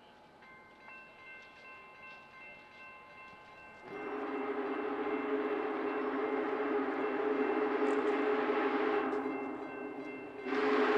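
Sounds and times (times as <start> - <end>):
train arriving with rushing hiss: 3.8 - 10.9.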